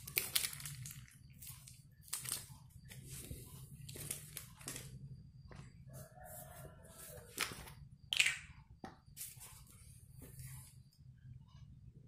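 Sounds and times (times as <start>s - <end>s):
rooster crowing: 5.8s - 7.5s.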